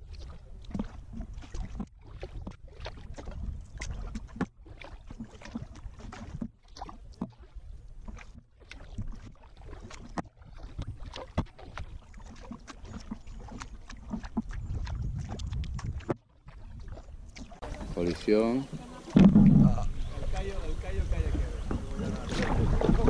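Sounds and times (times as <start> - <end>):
paddle splashing in water: 0.0 - 23.0
wind on microphone: 1.0 - 4.4, 13.4 - 23.0.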